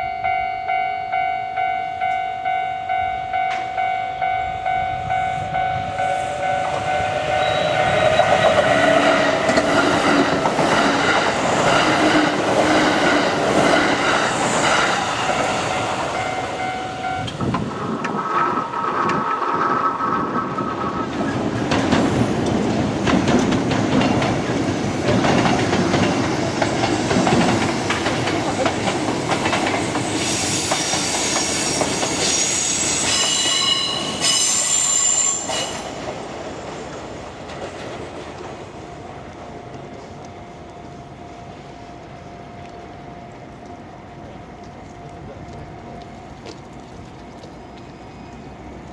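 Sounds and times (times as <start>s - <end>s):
level crossing alarm bell: 0.0s - 8.9s, 15.5s - 17.4s
train wheels squealing: 5.2s - 10.3s, 29.9s - 36.0s
train wheels clattering: 6.4s - 38.8s.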